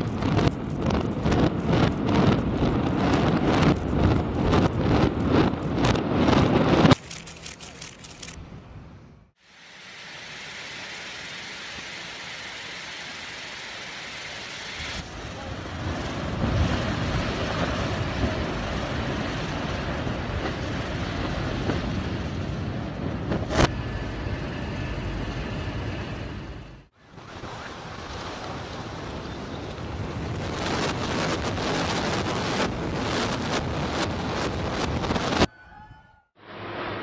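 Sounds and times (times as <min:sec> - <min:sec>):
wind buffeting microphone: 0:00.0 - 0:07.0, 0:15.0 - 0:36.0
sharp crackles: 0:00.0 - 0:08.4
structure collapsing rumble: 0:15.0 - 0:25.7.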